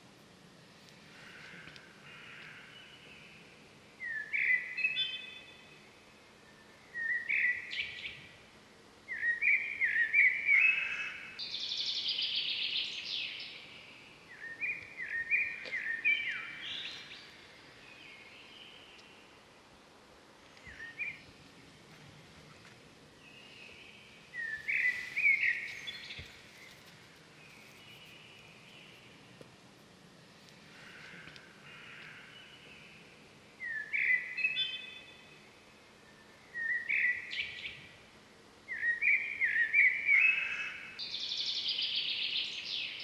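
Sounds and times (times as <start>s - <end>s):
faint outdoor background: 0.0s - 43.0s
bird chirping: 2.2s - 8.4s, 9.1s - 19.4s, 23.2s - 29.3s, 30.8s - 37.9s, 38.7s - 43.0s.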